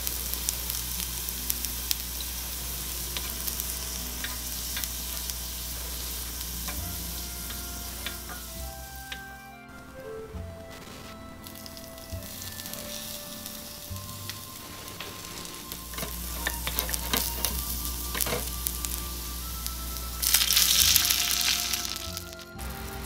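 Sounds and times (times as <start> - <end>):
liquid poured into hot pan hissing: 0.0 - 9.1, 12.2 - 22.5
onion sizzling in hot oil: 0.0 - 9.4, 11.4 - 23.0
spatula scraping a pan: 14.6 - 17.6.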